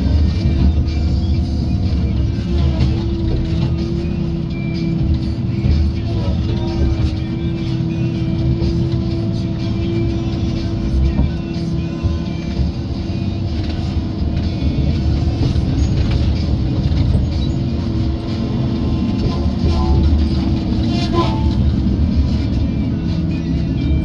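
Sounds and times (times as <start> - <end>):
diesel engine and hydraulics running: 0.0 - 24.0.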